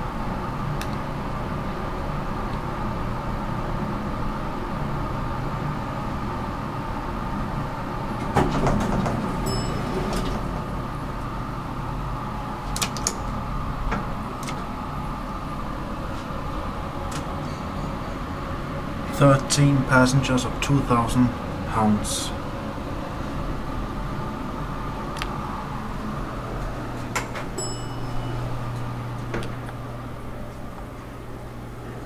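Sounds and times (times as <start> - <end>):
elevator running hum: 0.0 - 32.0
elevator doors sliding open: 8.1 - 11.6, 26.2 - 29.8
short elevator chime: 9.4 - 10.5, 27.6 - 28.8.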